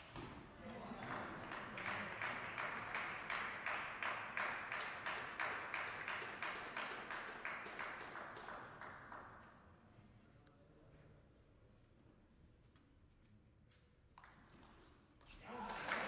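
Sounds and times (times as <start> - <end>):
audience clapping: 0.7 - 9.5, 15.4 - 16.0.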